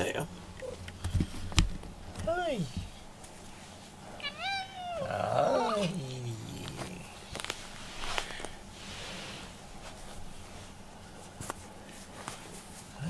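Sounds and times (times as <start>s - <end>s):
cat meowing: 4.2s - 6.0s.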